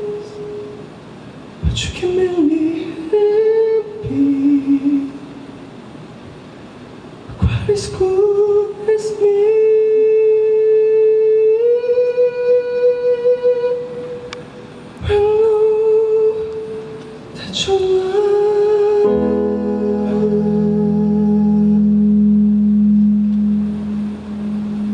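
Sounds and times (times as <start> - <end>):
man singing high wordless notes: 0.0 - 0.9, 1.6 - 5.5, 7.3 - 24.9
sustained keyboard chord: 18.9 - 24.9.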